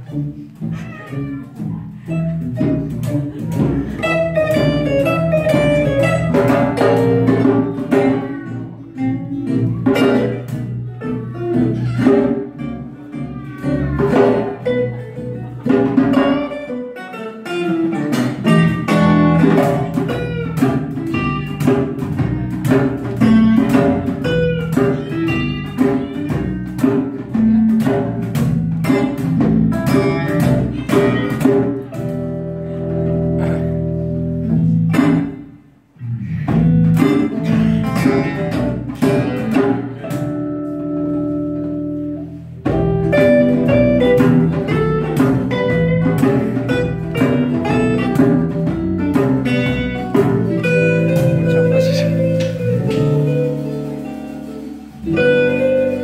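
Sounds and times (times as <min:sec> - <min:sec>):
acoustic guitars: 0:00.0 - 0:56.0
electric bass guitar: 0:00.0 - 0:56.0
hand drums: 0:00.7 - 0:16.6, 0:17.5 - 0:32.2, 0:42.6 - 0:56.0.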